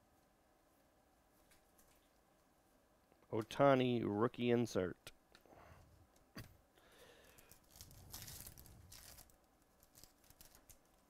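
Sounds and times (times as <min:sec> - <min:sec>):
wrapper tearing and crinkling: 0:07.2 - 0:11.0.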